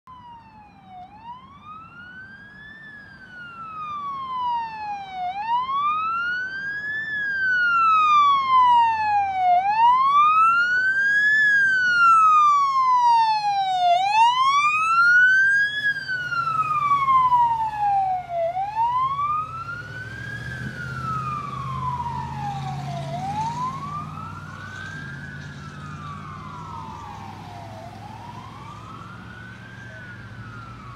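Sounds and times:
fire engine siren wailing: 0:00.0 - 0:30.9
fire engine engine: 0:00.1 - 0:30.9
second siren wail: 0:00.1 - 0:30.9.

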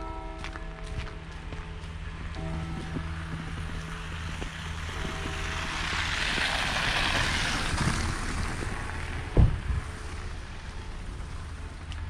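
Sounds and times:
vehicle tyre and road noise: 0:00.0 - 0:12.0
loud low thump: 0:09.3 - 0:09.9.

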